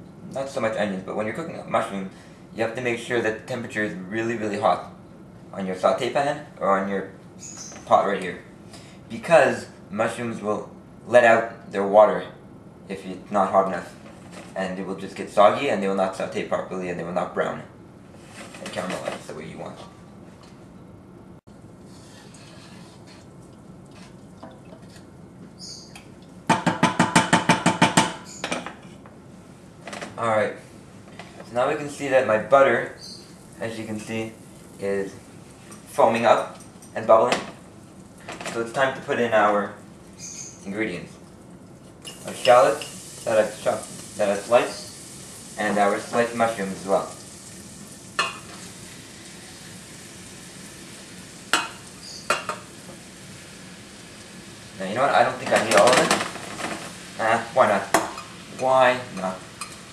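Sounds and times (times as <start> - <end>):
faint kitchen noise: 0.0 - 20.9, 21.8 - 59.9
butter sizzling in a pot: 42.0 - 59.9.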